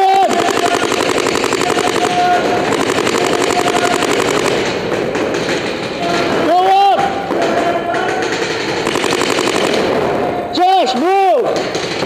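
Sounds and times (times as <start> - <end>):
paintball markers firing rapidly: 0.0 - 6.6, 7.2 - 10.4, 11.4 - 12.0.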